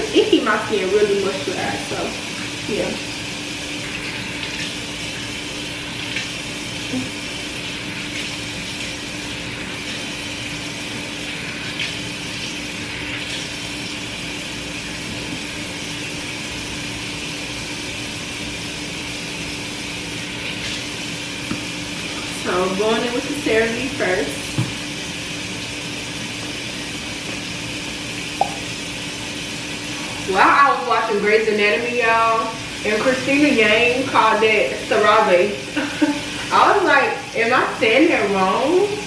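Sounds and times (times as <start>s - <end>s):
tap running into sink: 21.4s - 21.7s, 24.5s - 24.8s, 27.2s - 28.7s.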